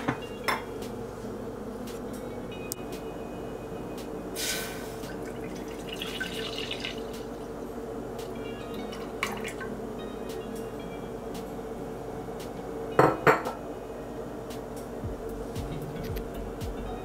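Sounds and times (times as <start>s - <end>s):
milk pouring into saucepan: 5.1s - 7.5s.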